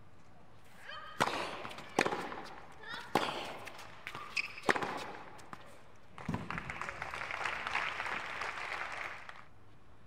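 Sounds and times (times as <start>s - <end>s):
racket hitting tennis ball: 1.1s - 6.5s
shoe squeak: 4.1s - 5.1s
spectators clapping: 6.2s - 9.5s.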